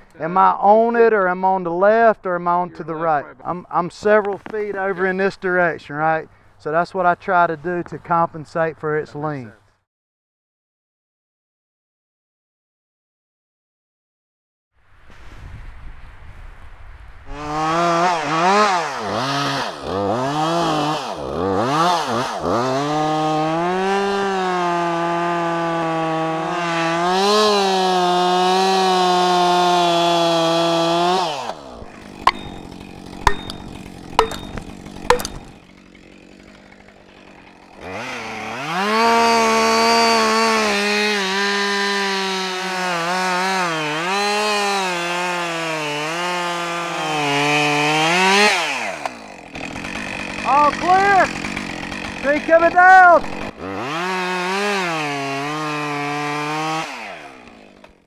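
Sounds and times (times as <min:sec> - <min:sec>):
chainsaw revving and cutting: 0:17.3 - 0:58.0.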